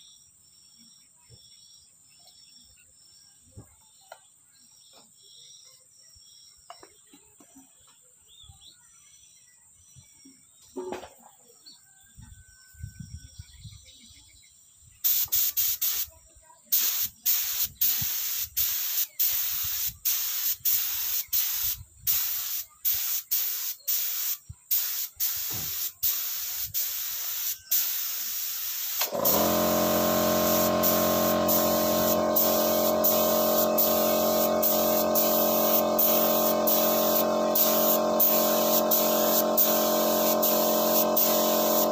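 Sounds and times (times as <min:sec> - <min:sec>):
spray gun hissing: 0:15.0 - 0:16.1, 0:16.7 - 0:41.9
steady machine hum: 0:29.1 - 0:41.9.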